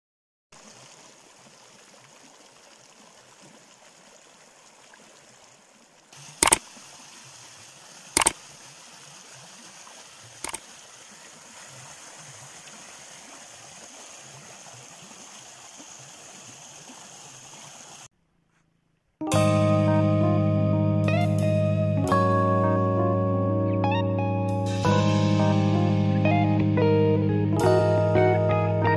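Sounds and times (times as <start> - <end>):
stream running over rocks: 0.6 - 18.1
sharp clicks: 6.4 - 6.6, 10.4 - 10.6.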